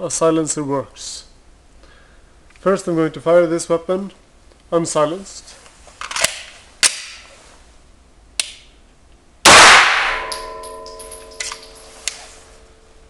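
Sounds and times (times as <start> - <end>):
pistol shot ringing: 9.5 - 11.9.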